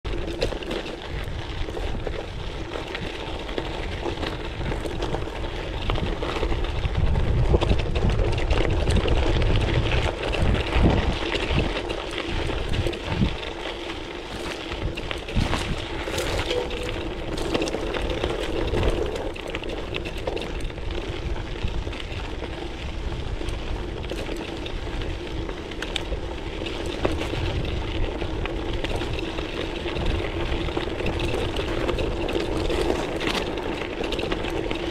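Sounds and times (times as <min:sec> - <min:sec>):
bike tyres crunching over gravel: 0:00.0 - 0:34.9
stones and bike rattling: 0:00.0 - 0:34.9
wind on microphone: 0:01.1 - 0:13.6, 0:14.2 - 0:33.5.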